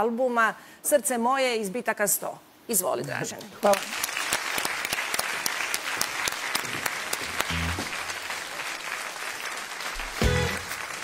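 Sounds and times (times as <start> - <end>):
applause: 3.4 - 11.0
band playing low notes: 7.2 - 8.2, 10.0 - 10.8.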